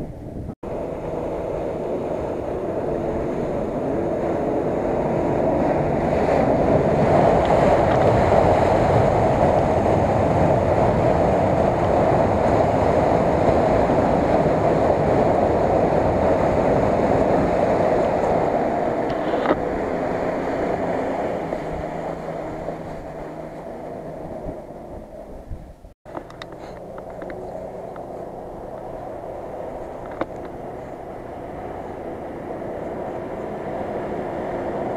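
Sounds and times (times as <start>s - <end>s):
engine under heavy load: 0.0s - 34.9s
wheels splashing through mud: 0.9s - 25.5s.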